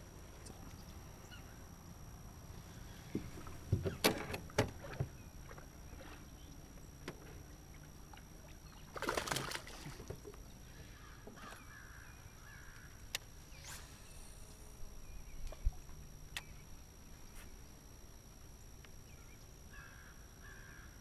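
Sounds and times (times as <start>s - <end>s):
fish splashing into water: 8.9s - 10.0s
bird calling: 19.1s - 21.0s.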